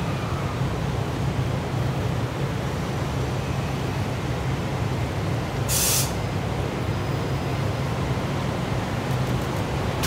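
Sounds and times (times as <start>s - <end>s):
short air release hiss: 5.7s - 6.2s.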